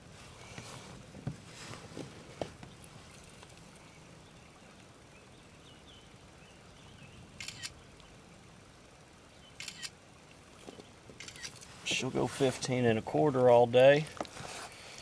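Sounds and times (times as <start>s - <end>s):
faint knocks and thumps: 0.4s - 3.5s
sharp clicks: 9.6s - 9.9s, 11.2s - 11.6s.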